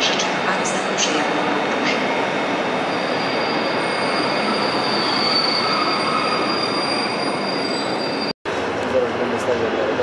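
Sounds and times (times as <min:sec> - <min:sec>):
train rumbling: 0:00.0 - 0:10.0
high-pitched wheel squeal: 0:02.8 - 0:08.3.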